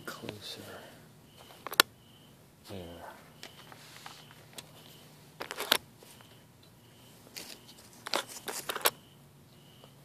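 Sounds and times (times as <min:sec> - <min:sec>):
hard drive caddy clicking: 0:05.4 - 0:05.8, 0:08.0 - 0:09.0.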